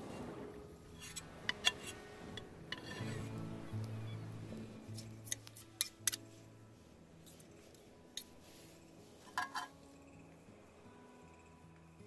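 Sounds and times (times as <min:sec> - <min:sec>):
cutlery clinking on steel plate: 0:01.0 - 0:03.2, 0:09.2 - 0:09.8.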